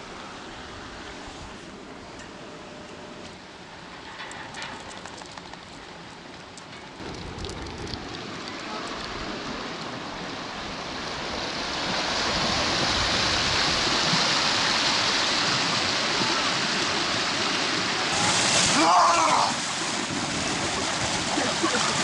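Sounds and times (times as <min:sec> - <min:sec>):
river rapids rushing: 0:09.7 - 0:22.0.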